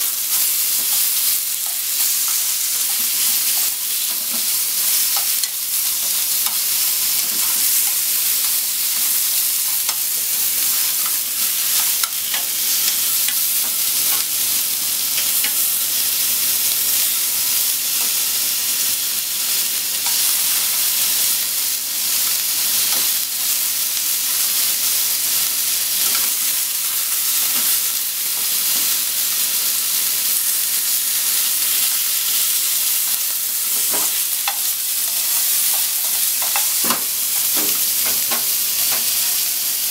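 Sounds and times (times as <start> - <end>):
pork sizzling in a frying pan: 0.0 - 39.9
chopsticks clicking against pan: 0.8 - 10.1, 34.0 - 39.1.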